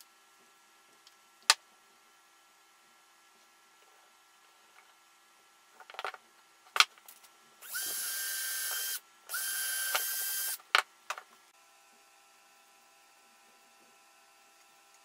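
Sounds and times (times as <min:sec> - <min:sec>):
power drill whining: 0:07.6 - 0:10.6.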